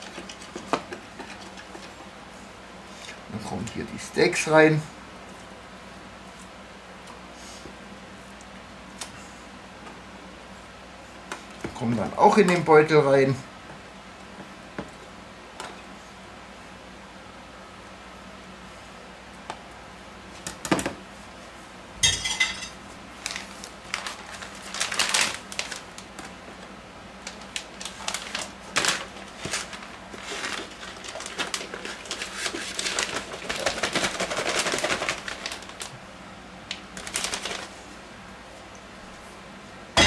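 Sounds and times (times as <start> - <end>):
plastic bag rustling: 23.1 - 26.5, 27.2 - 36.0, 36.7 - 38.0.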